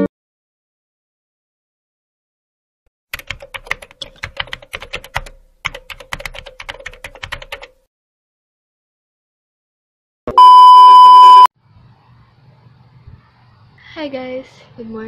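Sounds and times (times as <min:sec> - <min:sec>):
keyboard typing clicks: 0:03.1 - 0:07.8.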